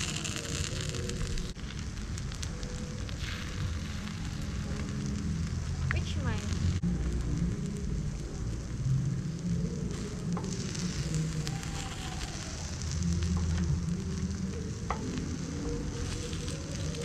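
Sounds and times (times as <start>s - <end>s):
batter sizzling in a pan: 0.0s - 17.0s
steady low rumble: 0.0s - 17.0s.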